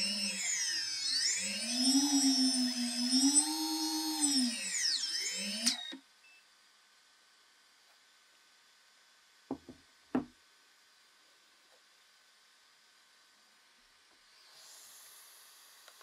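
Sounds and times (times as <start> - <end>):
drone motors whining: 0.0 - 6.0.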